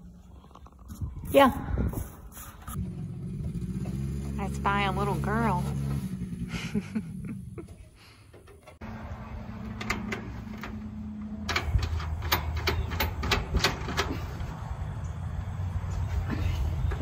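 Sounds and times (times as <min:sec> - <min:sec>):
metallic clicks from bolting panels: 0:09.6 - 0:14.4.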